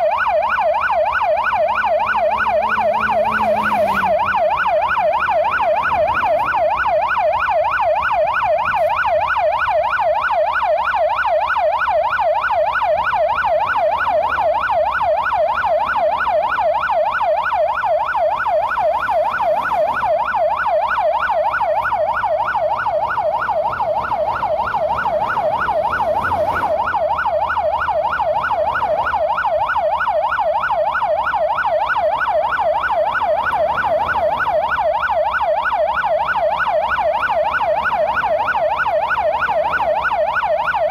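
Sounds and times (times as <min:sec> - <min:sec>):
emergency siren yelping: 0:00.0 - 0:40.9.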